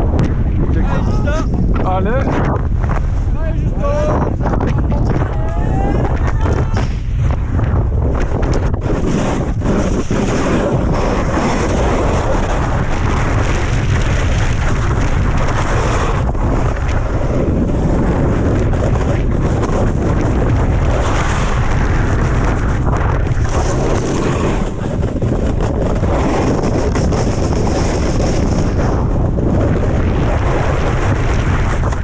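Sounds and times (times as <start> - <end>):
wind buffeting microphone: 0.0 - 32.0
snowboard edges scraping snow: 8.8 - 12.8, 15.3 - 17.4, 23.0 - 29.0.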